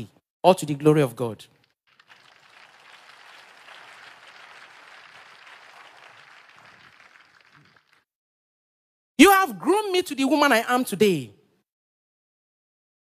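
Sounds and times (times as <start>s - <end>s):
faint audience applause: 1.9s - 8.1s.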